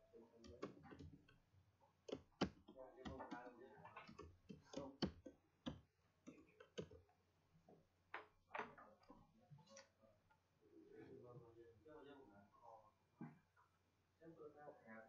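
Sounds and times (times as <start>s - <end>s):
mouse and keyboard clicks: 0.4s - 1.4s, 2.1s - 7.0s.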